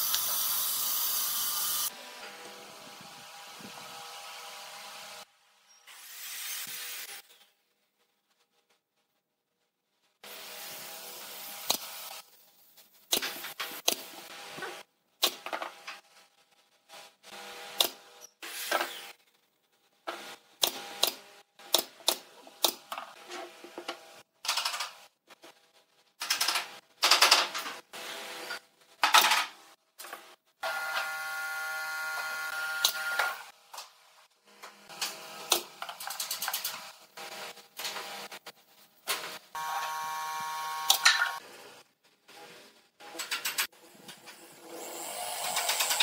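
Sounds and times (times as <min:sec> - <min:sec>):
mechanical hum: 0:30.6 - 0:42.5.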